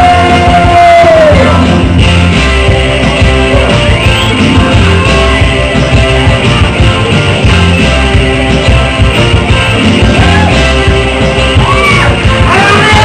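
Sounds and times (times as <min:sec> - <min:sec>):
person singing: 0:00.0 - 0:02.0, 0:10.0 - 0:13.0
rock and roll karaoke song: 0:00.0 - 0:13.0.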